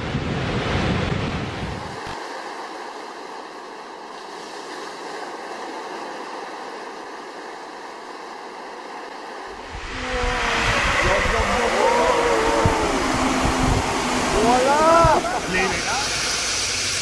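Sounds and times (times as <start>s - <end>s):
water rushing down a spillway: 8.6s - 17.0s.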